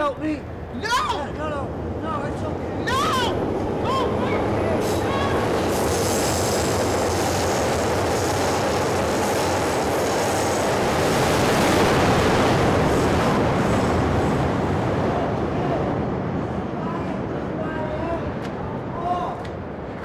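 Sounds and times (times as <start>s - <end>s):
passing train rumble: 0.0s - 20.0s
high hiss: 4.7s - 12.2s.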